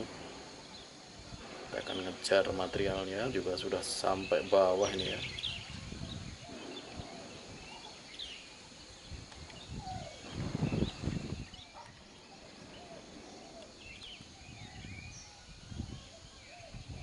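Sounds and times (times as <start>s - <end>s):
outdoor background noise: 0.0s - 17.0s
bird chirps: 3.9s - 17.0s.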